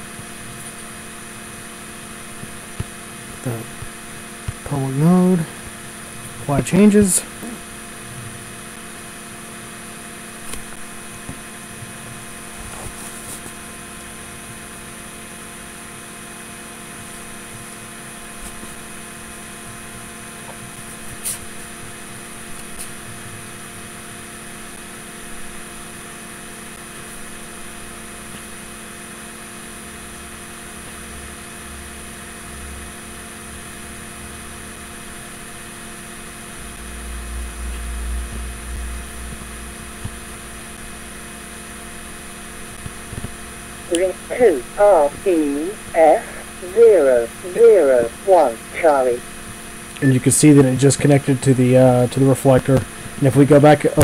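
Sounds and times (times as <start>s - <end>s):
steady electrical hum: 0.0s - 54.0s
low rumble: 36.8s - 40.5s.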